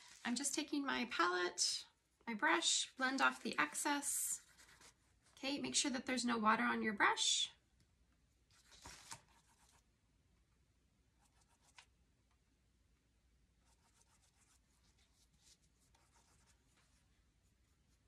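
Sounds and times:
paintbrush scratching on wood: 13.6s - 18.0s.

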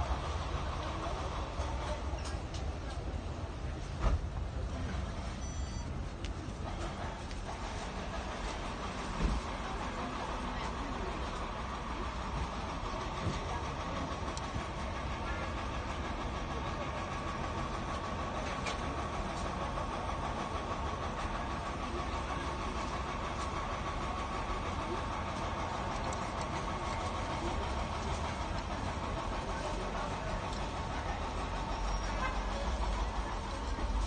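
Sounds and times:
shop background hum: 0.0s - 34.0s.

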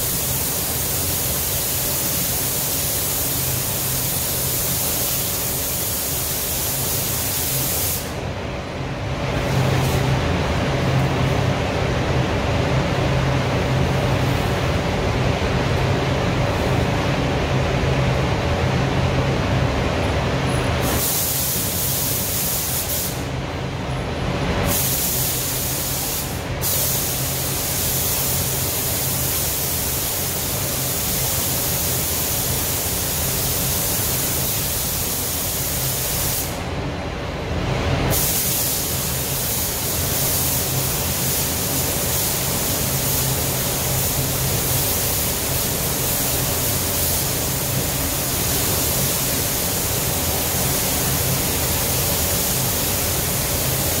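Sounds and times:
spray gun hissing: 0.0s - 8.2s, 20.8s - 23.3s, 24.6s - 36.6s, 38.1s - 54.0s
low hum of air system: 0.0s - 54.0s.

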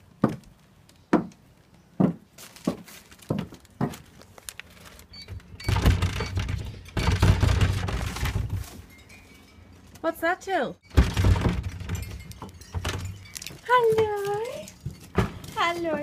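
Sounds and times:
footsteps on wooden stairs: 0.2s - 0.5s, 1.1s - 1.4s, 2.0s - 4.3s
wooden door rattling: 5.2s - 8.7s, 10.9s - 14.1s.

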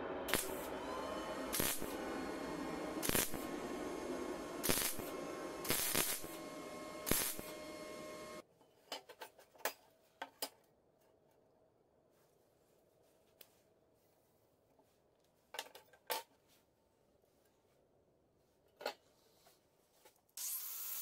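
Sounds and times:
welder hum: 0.0s - 8.4s, 20.4s - 21.0s
welding arc crackle: 0.3s - 0.7s, 1.3s - 3.6s, 4.4s - 8.4s.

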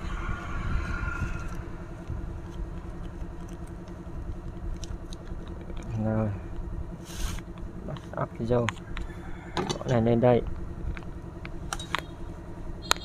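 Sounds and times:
faint hum: 0.0s - 13.0s
low background rumble: 0.0s - 13.0s.

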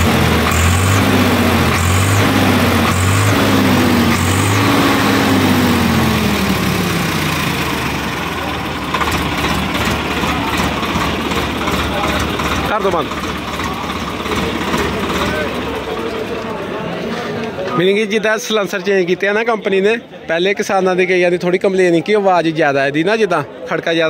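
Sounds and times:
tractor diesel engine revving: 0.0s - 17.4s.

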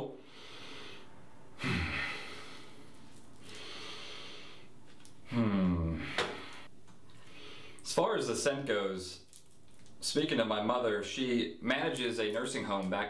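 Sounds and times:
man sniffing deeply: 0.2s - 2.9s
man humming briefly: 5.3s - 6.2s.

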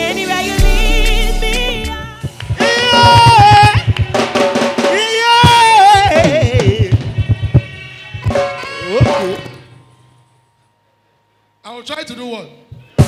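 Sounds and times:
drum kit playing low strokes: 0.0s - 9.7s.

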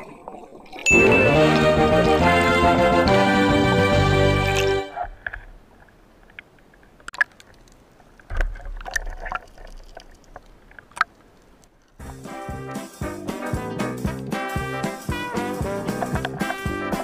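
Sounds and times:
sea water sloshing and splashing: 0.0s - 1.0s, 7.0s - 11.5s.

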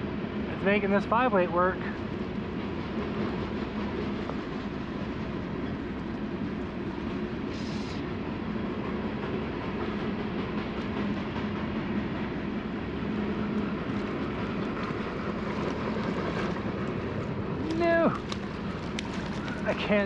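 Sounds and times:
river water flowing: 12.5s - 20.0s.

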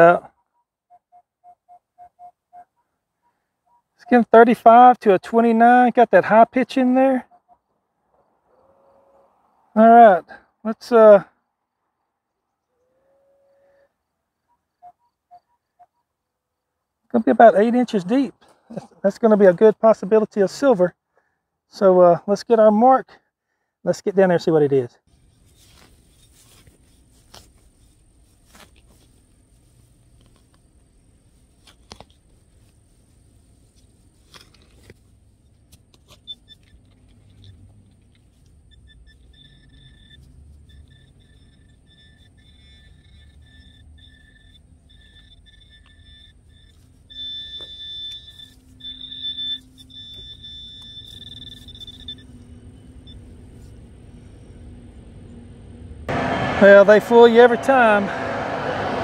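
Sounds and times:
metal detector beeping: 0.0s - 2.7s, 35.9s - 37.6s, 38.4s - 54.6s
soil scraping: 25.1s - 52.6s.

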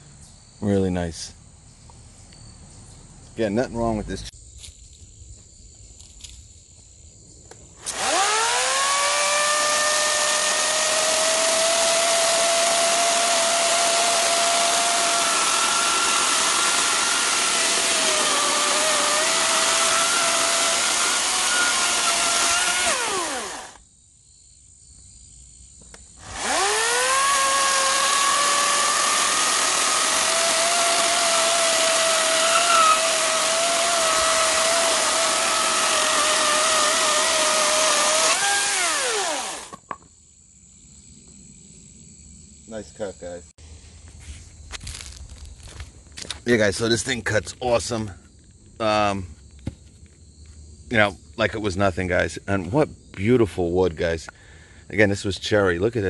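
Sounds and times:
chainsaw cutting a log: 7.8s - 23.8s, 26.2s - 39.8s.

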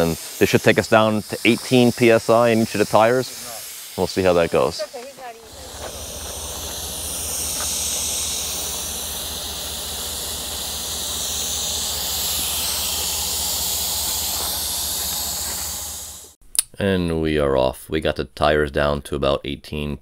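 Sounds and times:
air hissing out of tire: 0.0s - 16.4s
low steady hum: 5.4s - 16.3s.

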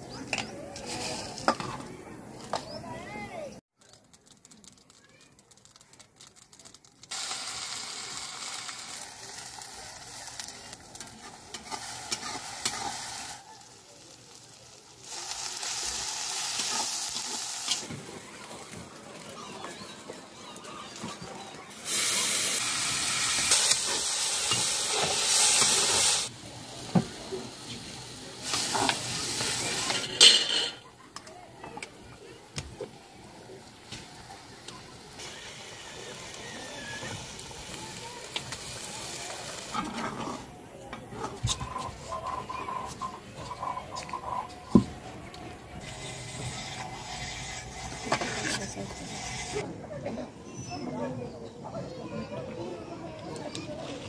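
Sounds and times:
fish sizzling in hot oil: 4.0s - 19.3s, 21.7s - 30.7s, 33.0s - 39.9s
spatula stirring in a wok: 9.4s - 17.9s, 45.8s - 49.6s.

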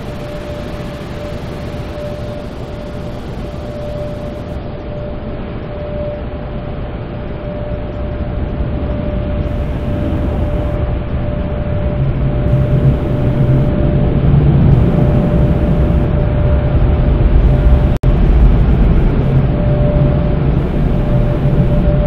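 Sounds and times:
car wash spray and machinery: 0.0s - 4.6s, 9.4s - 22.0s
constant high hum: 0.0s - 22.0s
low drone: 0.0s - 22.0s.

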